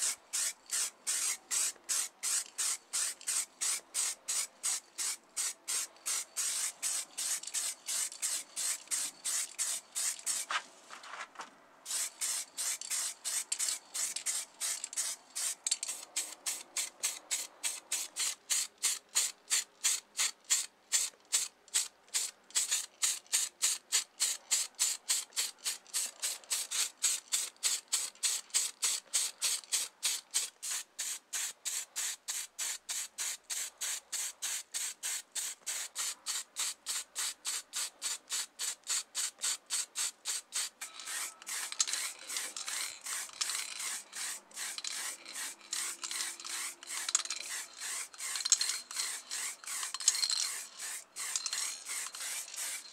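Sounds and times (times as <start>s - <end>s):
aerosol spray paint hissing: 0.0s - 10.6s, 11.9s - 52.9s.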